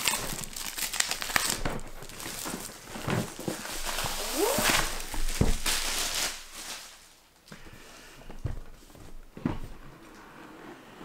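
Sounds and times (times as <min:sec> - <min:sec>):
cardboard box crinkling: 0:00.0 - 0:07.1.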